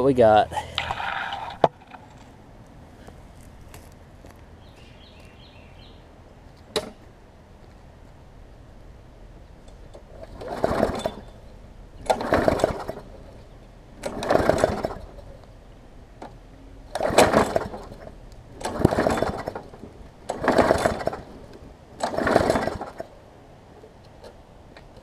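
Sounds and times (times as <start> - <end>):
mower engine cranking on pull start: 9.9 - 11.4, 12.0 - 15.4, 16.9 - 23.2.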